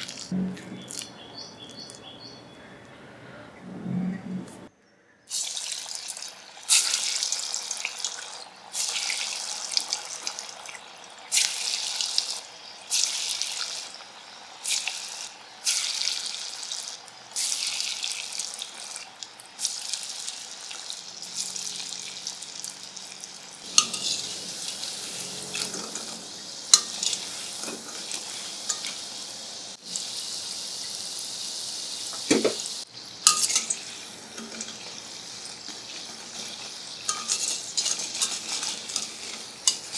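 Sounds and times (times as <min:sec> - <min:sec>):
oil sizzling steadily: 0:00.0 - 0:00.4, 0:05.3 - 0:39.9
batter sizzling into hot oil: 0:00.0 - 0:01.1, 0:05.3 - 0:39.9
strainer clinking against wok: 0:23.7 - 0:24.4, 0:25.6 - 0:29.0, 0:33.2 - 0:39.9.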